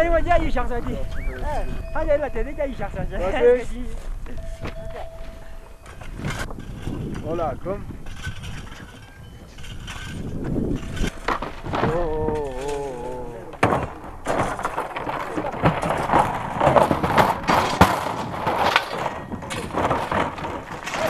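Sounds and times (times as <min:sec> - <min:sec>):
clattering on loose rocks: 0:00.0 - 0:21.0.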